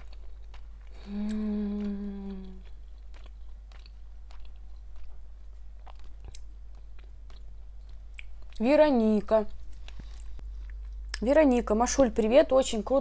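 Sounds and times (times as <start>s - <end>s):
quiet chewing with mouth clicks: 0.0s - 8.7s, 9.6s - 11.2s
woman humming: 1.0s - 2.7s.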